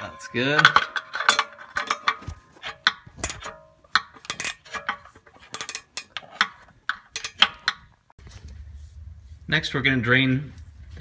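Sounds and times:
ratcheting wrench clicking: 2.8 - 7.8.

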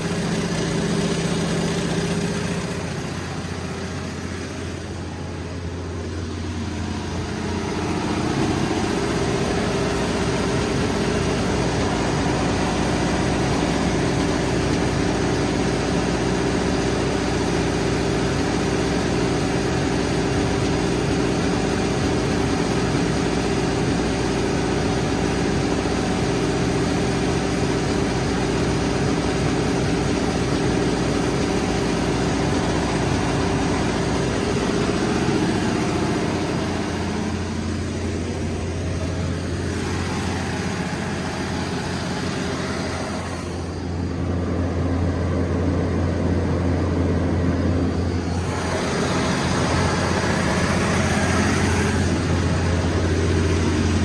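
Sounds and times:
diesel generator engine running: 0.0 - 54.0.

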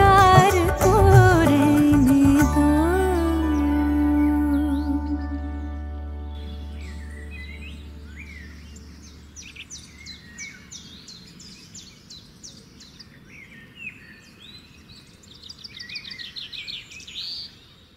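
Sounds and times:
birds chirping and singing: 2.4 - 17.8
bird trill: 4.5 - 12.0.

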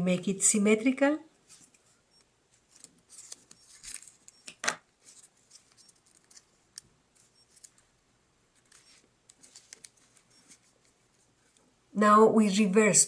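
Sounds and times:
paper being folded and creased: 2.6 - 4.2, 5.0 - 6.6.

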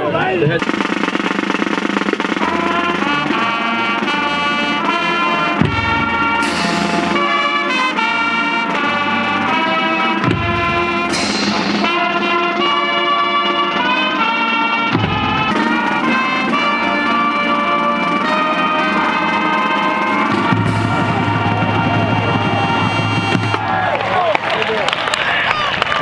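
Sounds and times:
music with held chords: 1.4 - 23.5
cymbal crash: 5.7 - 7.2, 10.6 - 11.9.

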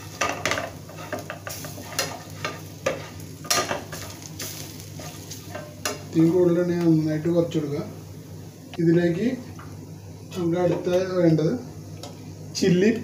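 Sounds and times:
paste sizzling in oil: 0.0 - 6.5
metal spatula scraping pan: 0.2 - 4.2.

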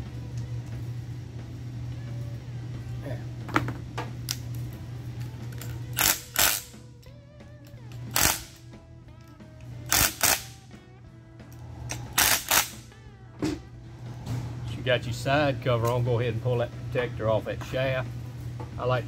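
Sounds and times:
guitar music: 4.6 - 18.6.

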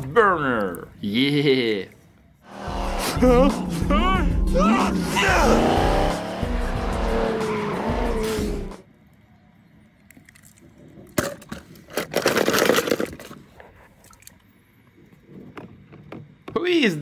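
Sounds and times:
race car engines revving: 2.5 - 8.8
soundtrack music: 2.5 - 8.8
toy cars clattering in colander: 11.2 - 13.4.

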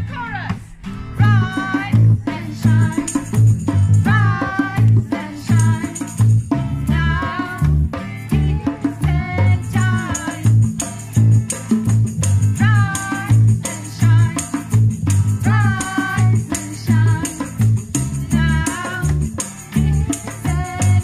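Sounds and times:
bongos: 0.0 - 21.0
electric bass: 0.0 - 21.0
strummed acoustic guitar: 0.0 - 21.0
woman singing: 1.2 - 3.4, 4.0 - 10.9, 12.6 - 14.8, 15.4 - 17.6, 18.2 - 21.0
hand shaker rattling: 1.3 - 21.0.

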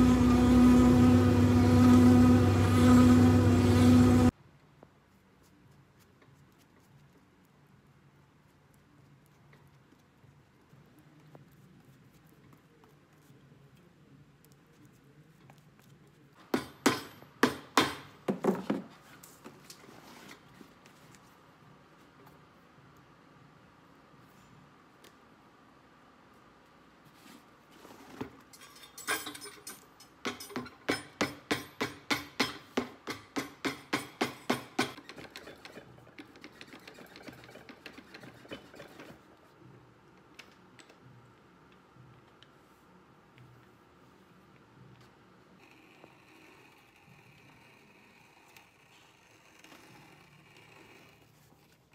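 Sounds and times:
hammer striking leather on iron: 16.5 - 18.4, 30.2 - 35.0.

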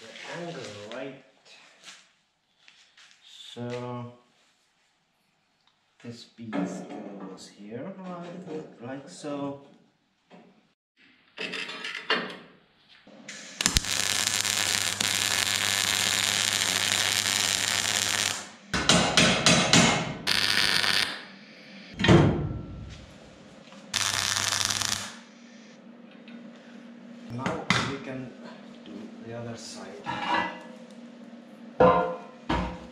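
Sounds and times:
welder arc buzzing: 13.3 - 18.8, 20.2 - 21.3, 23.9 - 25.8.

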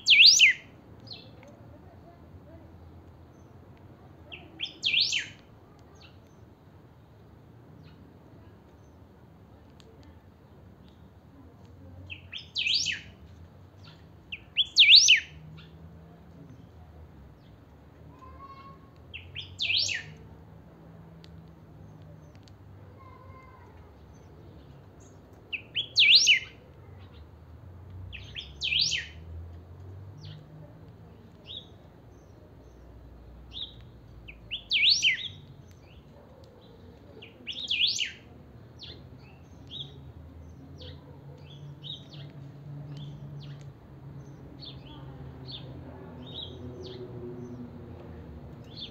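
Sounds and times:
soft bird chirps: 0.0 - 1.6, 3.1 - 7.1, 9.7 - 17.6, 18.2 - 20.3, 21.2 - 27.3, 27.9 - 47.7
bird song phrases: 0.0 - 48.9.

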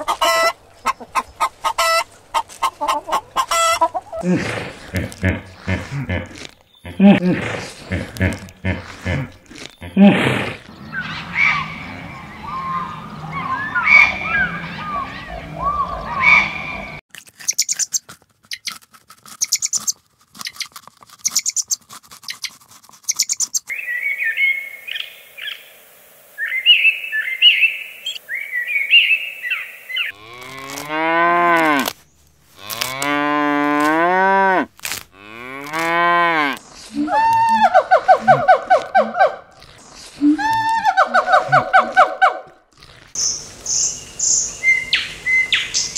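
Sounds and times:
short chirping calls: 10.7 - 18.7, 19.4 - 20.6, 21.2 - 25.7.

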